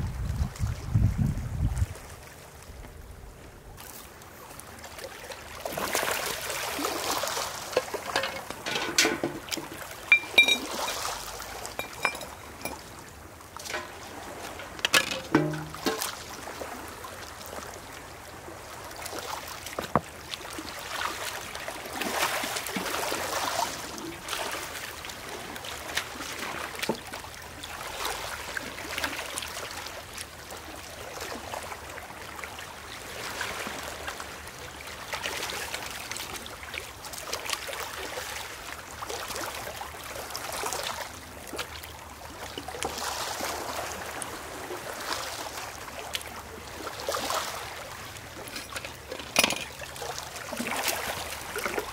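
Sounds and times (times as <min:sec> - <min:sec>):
seawater washing over stones: 0:03.8 - 0:29.2, 0:42.8 - 0:51.9.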